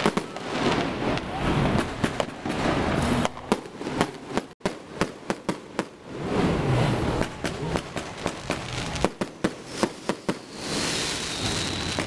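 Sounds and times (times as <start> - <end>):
continuous rush of noise: 0.0 - 12.0
fireworks banging: 0.0 - 12.0.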